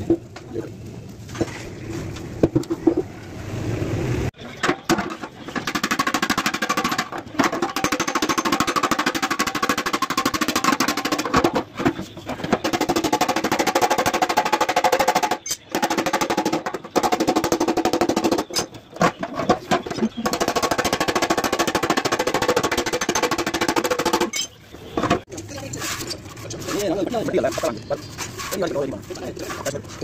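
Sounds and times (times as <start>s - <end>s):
rapid metallic tapping on steel tank: 5.5s - 24.4s.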